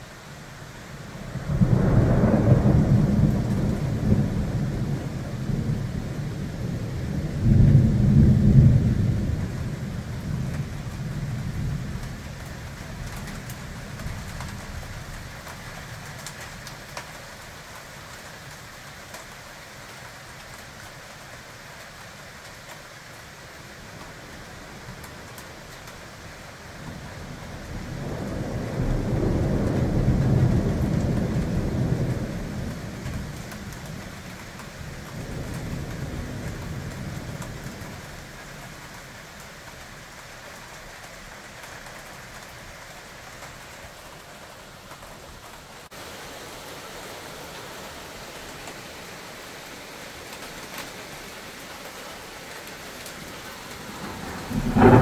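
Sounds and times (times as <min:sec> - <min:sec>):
rain hiss: 0:00.0 - 0:55.0
thunder rumbling: 0:01.2 - 0:15.4, 0:26.8 - 0:38.4, 0:52.6 - 0:55.0.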